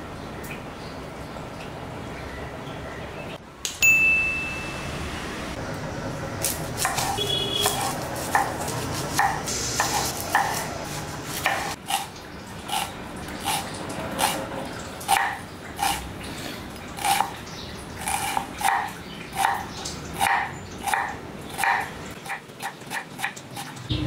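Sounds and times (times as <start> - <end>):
brass bowl ringing: 3.8 - 5.2
cleaver chopping on wooden board: 6.4 - 10.6.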